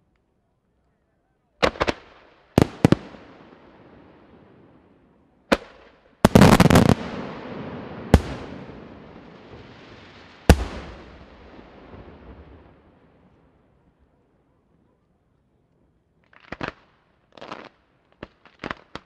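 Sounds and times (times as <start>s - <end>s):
fireworks bursting with echo: 1.6s - 13.5s.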